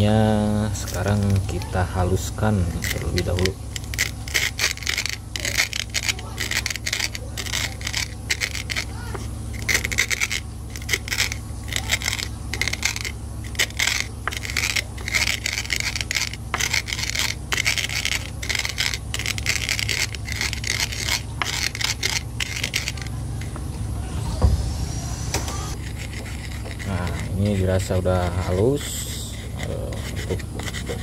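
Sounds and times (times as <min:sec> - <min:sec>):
pestle grinding in wooden mortar: 0:00.0 - 0:24.7, 0:25.7 - 0:31.0.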